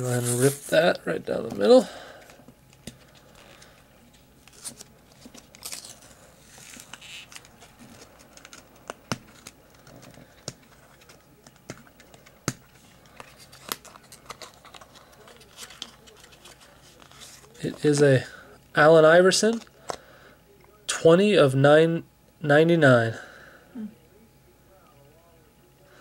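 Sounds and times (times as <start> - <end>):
cardboard tearing: 4.5 - 8.6.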